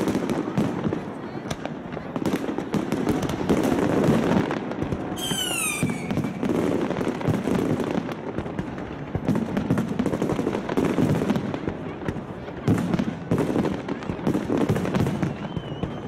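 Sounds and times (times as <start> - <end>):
fireworks bangs and crackles: 0.0 - 16.0
falling firework whistle: 5.2 - 6.5, 15.0 - 16.0.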